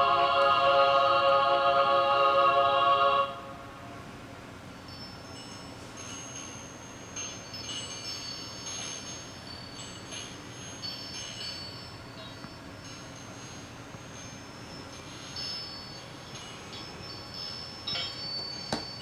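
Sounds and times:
recorded choir chord: 0:00.0 - 0:04.1
high tinkling chimes: 0:04.6 - 0:19.0.

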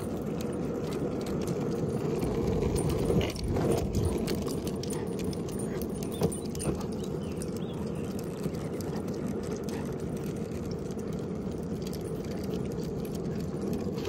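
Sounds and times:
dog harness hardware jingling: 0:00.0 - 0:14.0.

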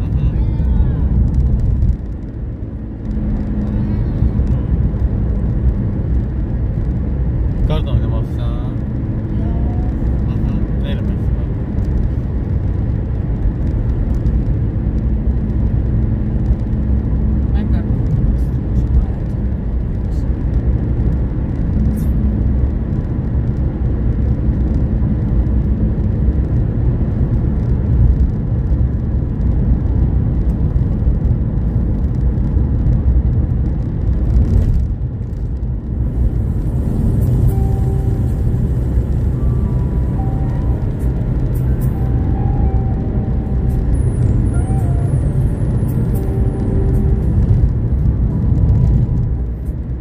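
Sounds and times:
car road noise rumble: 0:00.0 - 0:50.0
faint steady tones: 0:36.8 - 0:47.7.

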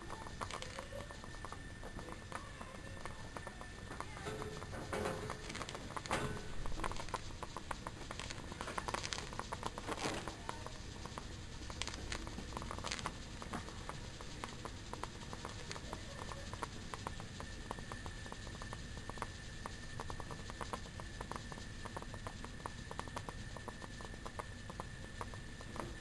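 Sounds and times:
faint steady high tone: 0:00.0 - 0:07.4
ticking and crackling: 0:00.0 - 0:26.0.

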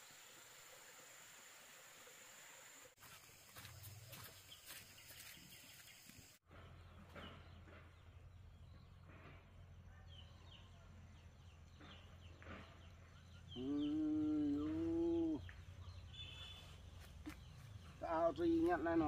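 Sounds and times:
long animal call: 0:13.6 - 0:15.4.

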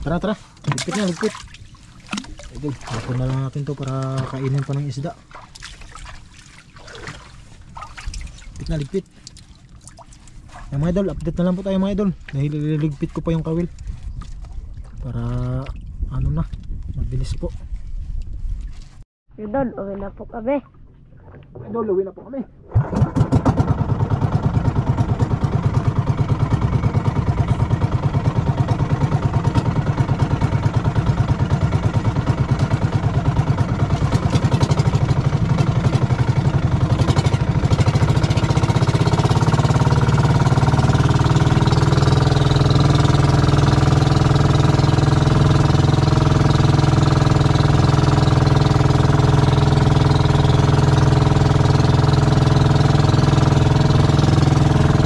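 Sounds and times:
small boat engine running: 0:00.0 - 0:15.9, 0:22.7 - 0:55.0.

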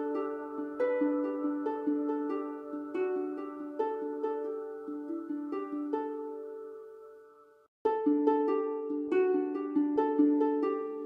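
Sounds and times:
plucked string melody: 0:00.0 - 0:11.0.

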